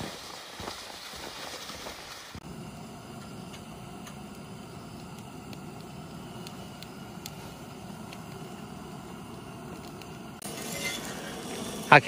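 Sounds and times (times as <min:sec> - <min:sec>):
camp stove burner roaring: 0:02.2 - 0:12.0.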